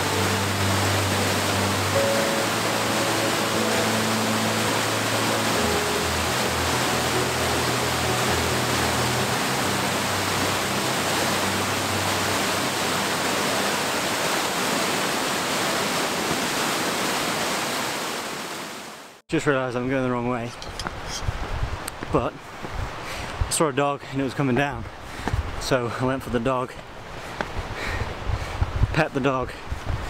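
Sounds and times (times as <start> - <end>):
soft music: 0.0 - 14.5
loud outdoor rushing noise: 0.0 - 18.8.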